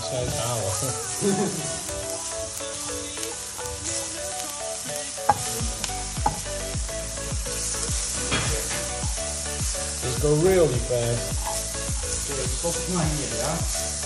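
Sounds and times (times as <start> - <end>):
background music: 0.0 - 14.0
onions sizzling: 0.0 - 14.0
bass drum beat: 5.3 - 14.0.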